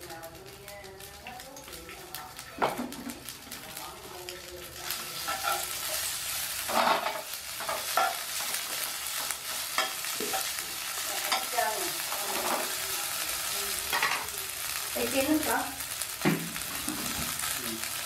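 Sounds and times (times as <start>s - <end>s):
noodles sizzling in a frying pan: 0.0s - 18.0s
spatula scraping a pan: 5.2s - 12.9s.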